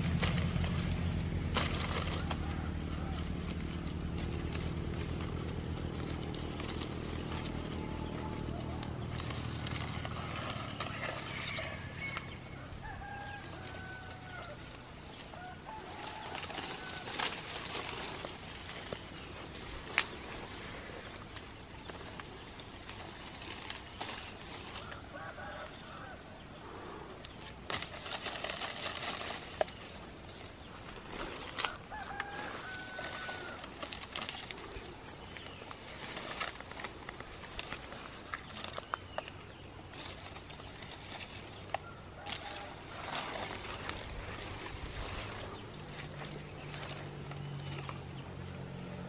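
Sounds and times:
branches snapping: 0.0s - 12.3s, 15.8s - 20.4s, 27.3s - 48.1s
leaves rustling: 0.0s - 49.0s.

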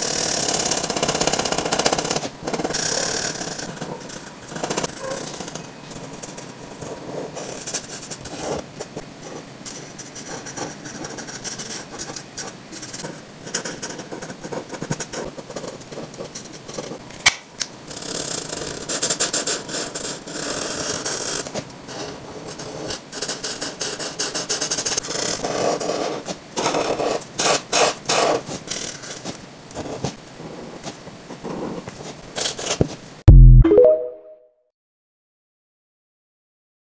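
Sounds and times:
marker nibs scratching paper: 2.2s - 17.0s.

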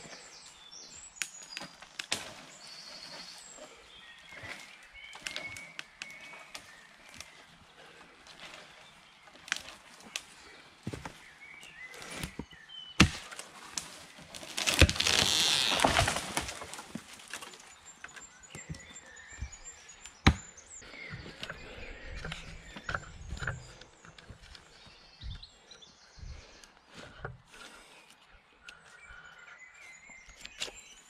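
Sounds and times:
axe chopping tree trunk: 13.0s - 13.4s, 14.4s - 16.6s, 20.2s - 20.6s
tree falling through branches: 13.0s - 17.8s.

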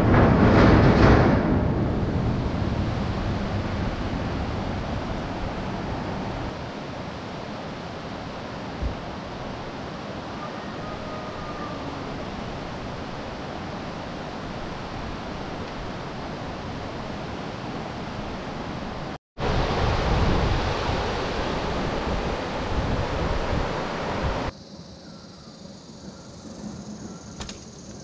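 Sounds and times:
wind rushing: 0.0s - 6.8s, 12.0s - 24.5s
wind buffeting microphone: 0.0s - 24.5s.

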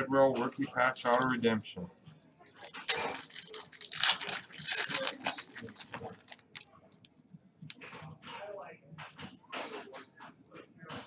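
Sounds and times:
foil wrapper tearing and crinkling: 0.9s - 1.6s, 2.5s - 6.6s.

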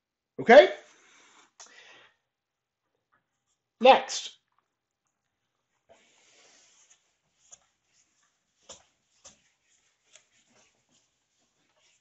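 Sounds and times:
eraser wiping whiteboard: 6.0s - 12.0s.

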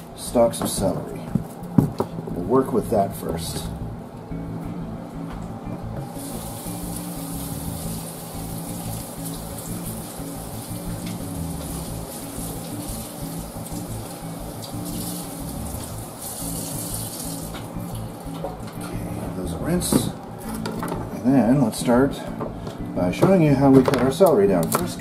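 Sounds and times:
faucet running water: 6.0s - 19.9s.

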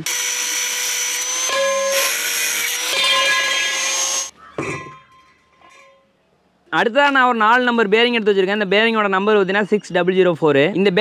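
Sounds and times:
angle grinder cutting pipe: 0.0s - 6.0s.

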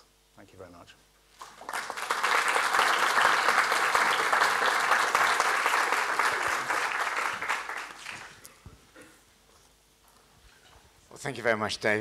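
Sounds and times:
audience applauding: 1.4s - 8.5s.

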